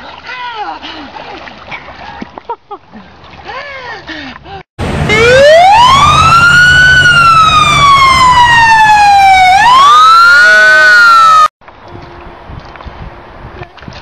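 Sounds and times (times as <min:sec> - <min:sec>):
low engine rumble: 0:04.8 - 0:09.4
ambulance siren wailing: 0:04.9 - 0:11.5.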